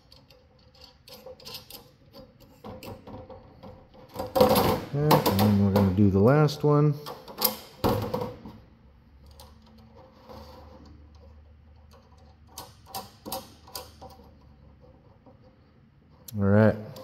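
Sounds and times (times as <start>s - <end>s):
bolt and nut clicking on metal: 0.0s - 5.9s, 11.1s - 15.5s.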